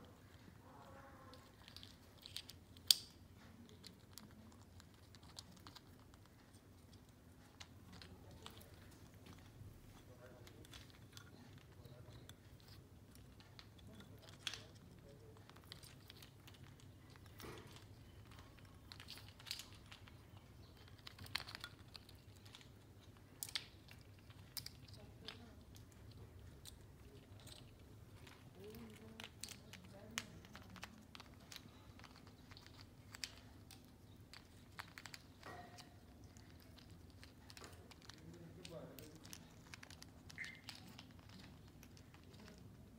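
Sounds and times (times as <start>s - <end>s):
parrot beaks clicking on plastic: 28.2s - 42.7s.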